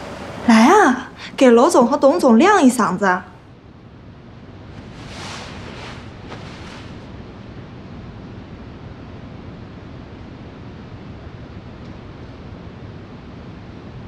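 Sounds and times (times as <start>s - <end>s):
background hiss and rumble: 0.0s - 14.0s
soft rush: 4.7s - 7.2s.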